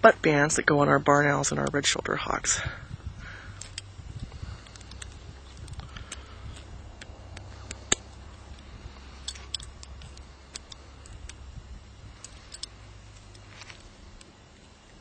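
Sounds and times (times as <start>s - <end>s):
low rumble: 0.0s - 15.0s
pliers metallic clicks: 3.6s - 4.0s, 4.6s - 11.5s, 12.2s - 14.3s.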